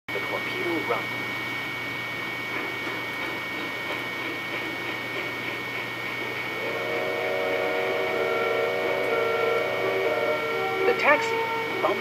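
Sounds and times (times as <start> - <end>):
sustained chord of held tones: 7.3 - 12.0
thin high steady tone: 7.4 - 12.0.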